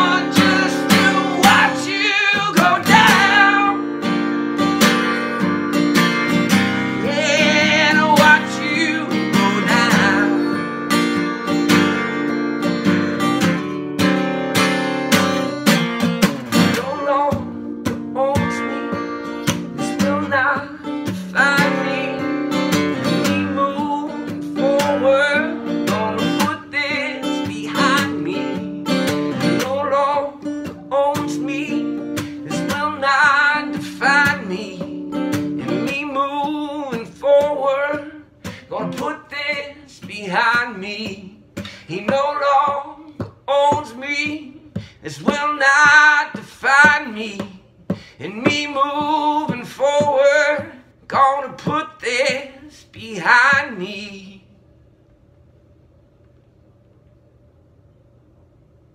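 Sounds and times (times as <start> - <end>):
man singing: 0.0 - 4.2, 4.8 - 10.8, 16.5 - 54.6
acoustic guitar strumming: 0.0 - 54.2.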